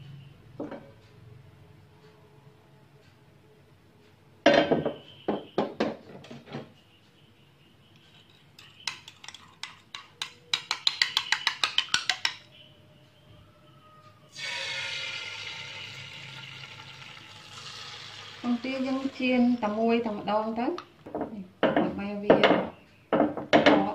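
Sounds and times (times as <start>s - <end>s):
spoon beating egg in ceramic bowl: 8.0s - 12.5s.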